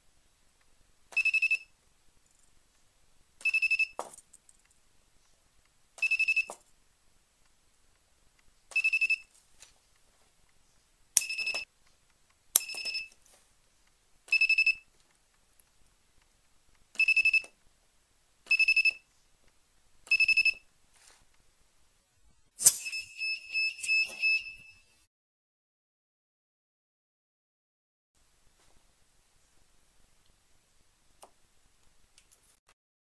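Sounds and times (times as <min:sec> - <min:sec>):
sharp snap of weld pulse: 0:22.6 - 0:23.0
short high buzzer beeps: 0:22.6 - 0:25.1.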